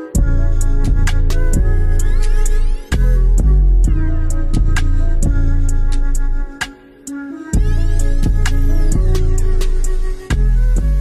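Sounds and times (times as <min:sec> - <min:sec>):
trap instrumental beat: 0:00.0 - 0:11.0.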